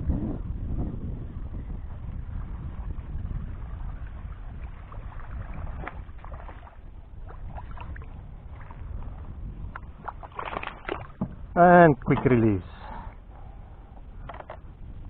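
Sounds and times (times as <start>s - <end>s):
wind rumbling on the microphone: 0.0s - 15.0s
fish splashing at the surface: 10.0s - 11.2s.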